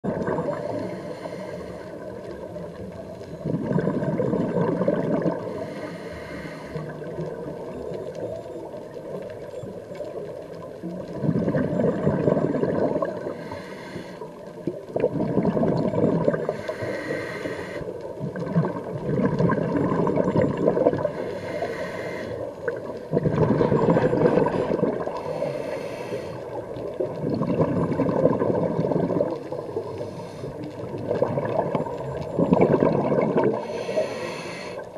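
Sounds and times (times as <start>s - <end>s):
underwater exhaled bubbles gurgling: 0.0s - 34.9s
regulator hissing inhalations: 0.6s - 2.2s, 5.5s - 6.9s, 13.3s - 14.3s, 16.4s - 18.0s, 21.1s - 22.5s, 25.1s - 26.6s, 29.8s - 30.7s, 33.6s - 34.9s.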